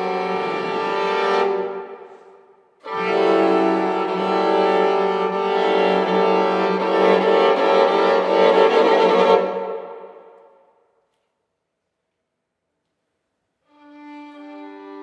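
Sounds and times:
string quartet playing: 0:00.0 - 0:10.3, 0:13.7 - 0:15.0.

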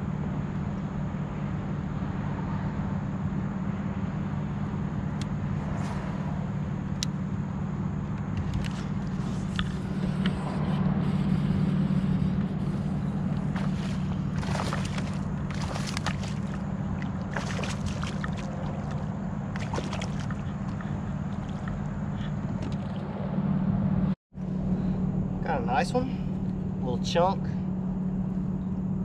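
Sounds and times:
small motor humming: 0:08.2 - 0:22.9
fish splashing at surface: 0:13.4 - 0:21.8.

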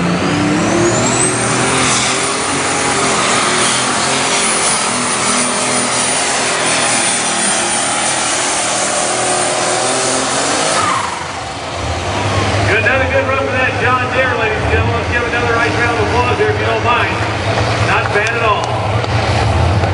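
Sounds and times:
diesel tractor engine at full power: 0:00.0 - 0:19.9.

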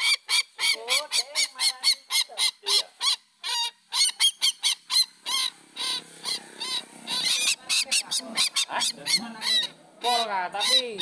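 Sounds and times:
rail bird calls: 0:00.0 - 0:11.0.

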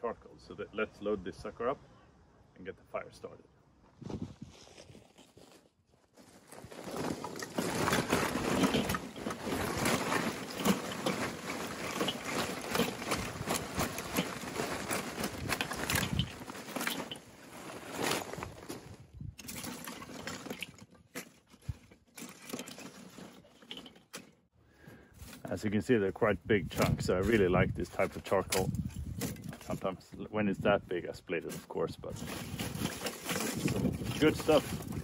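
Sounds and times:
charcoal lumps clattering on metal: 0:06.5 - 0:25.6, 0:26.6 - 0:29.9, 0:31.4 - 0:35.0.

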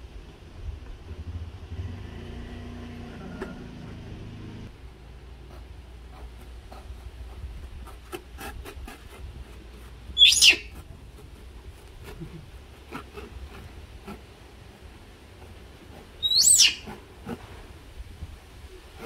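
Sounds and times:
knife cutting taped cardboard: 0:05.4 - 0:17.6
baby monkey squealing: 0:10.2 - 0:10.7, 0:16.2 - 0:17.0.

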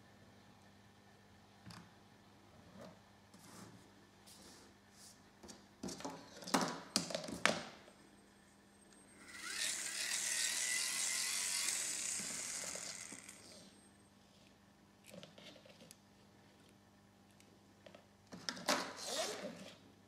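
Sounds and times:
hand-cranked motor whirring: 0:09.2 - 0:13.7.

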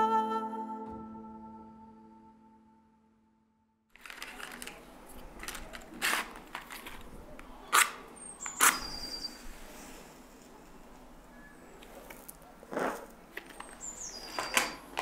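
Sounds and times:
held music chord: 0:00.0 - 0:03.8.

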